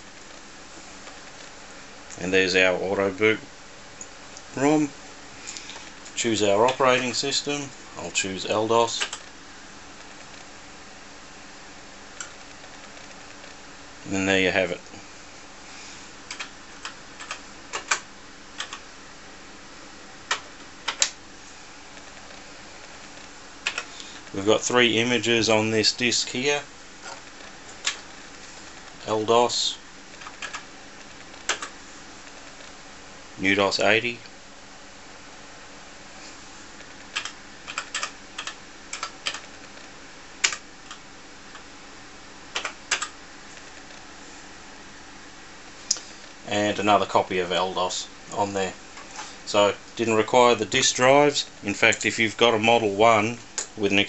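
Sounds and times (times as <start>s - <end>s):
faint steady hum: 0.0s - 54.0s
keyboard keys clicking: 30.2s - 30.6s, 37.1s - 39.5s, 42.6s - 43.1s.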